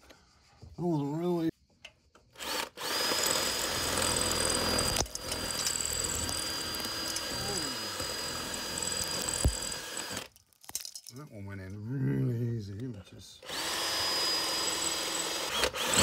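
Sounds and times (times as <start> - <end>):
drill boring into masonry: 2.3 - 10.3, 13.4 - 16.0.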